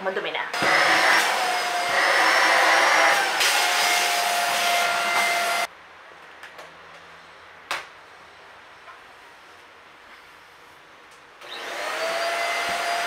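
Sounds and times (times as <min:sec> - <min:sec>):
handheld vacuum cleaner whining: 0:00.6 - 0:05.7, 0:11.4 - 0:13.0.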